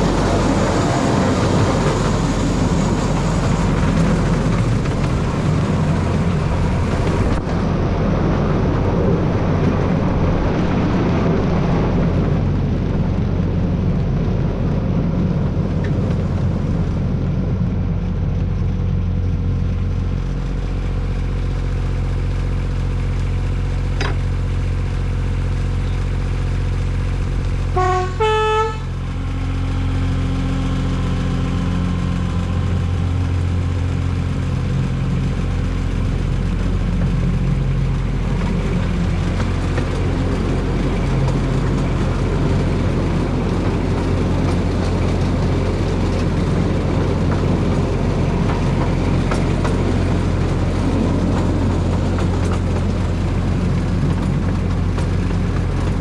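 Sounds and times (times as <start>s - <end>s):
diesel locomotive engine running: 0.0s - 56.0s
two-note horn blast: 27.7s - 29.1s.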